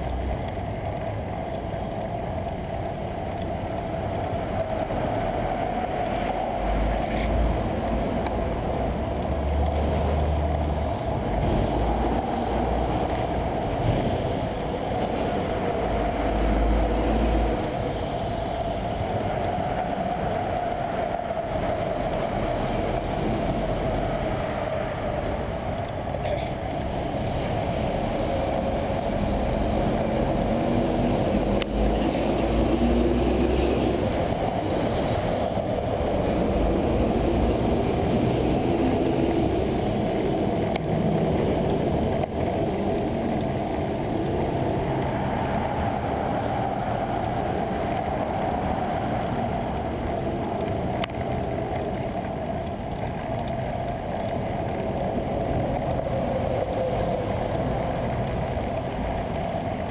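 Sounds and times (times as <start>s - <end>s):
city motor traffic: 0.0s - 59.9s
wind and bicycle road noise: 0.0s - 59.9s.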